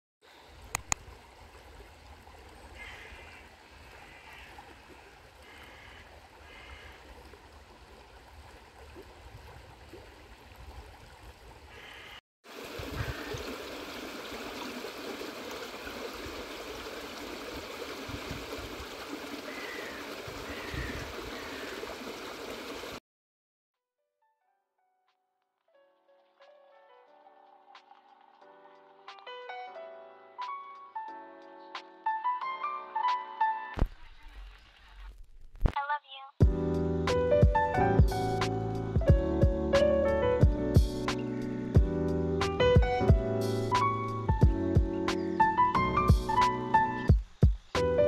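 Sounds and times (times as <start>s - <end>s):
brook flowing over stones: 0.2s - 23.0s.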